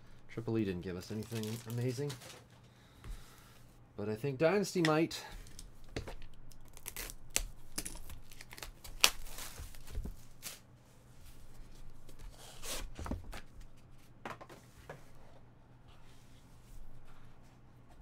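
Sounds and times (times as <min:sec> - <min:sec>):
shrink wrap tearing and crinkling: 0:01.0 - 0:02.5, 0:06.5 - 0:10.6.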